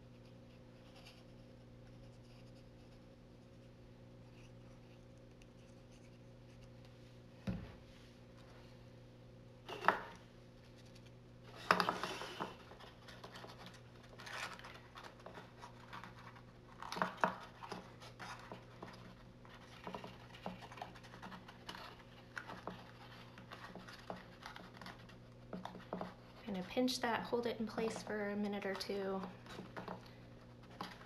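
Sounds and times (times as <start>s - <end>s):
steady low hum: 0.0s - 31.0s
cardstock rustling and tapping: 11.6s - 26.7s.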